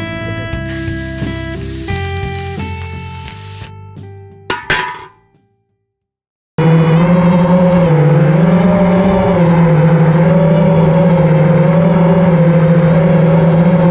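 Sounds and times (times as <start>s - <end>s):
drone propellers buzzing whine: 6.6s - 13.9s.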